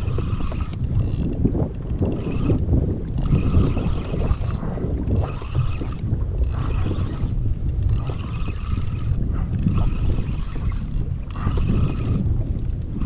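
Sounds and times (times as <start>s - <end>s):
fishing reel gears whining: 0.0s - 13.0s
wind buffeting microphone: 0.0s - 13.0s.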